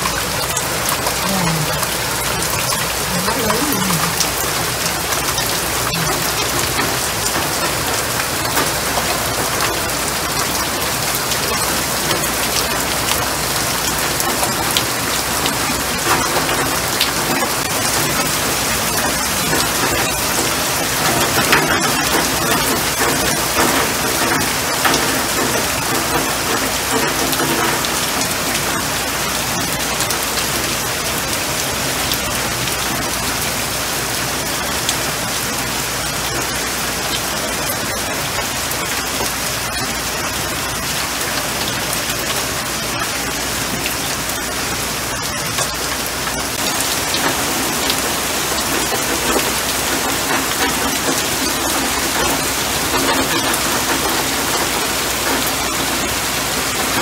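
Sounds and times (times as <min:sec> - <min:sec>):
rain on leafy shrubs: 0:00.0 - 0:57.0.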